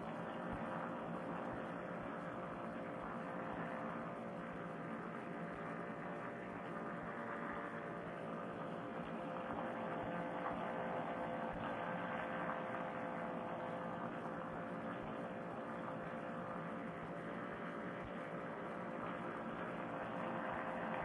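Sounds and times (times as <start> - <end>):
paramotor engine droning: 0.0 - 21.0.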